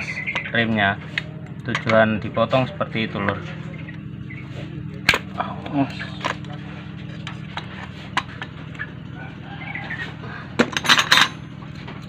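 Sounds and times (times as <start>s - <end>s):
steady low hum: 0.0s - 12.0s
metal parts clattering: 10.6s - 11.4s
metal tools clinking: 10.6s - 12.0s.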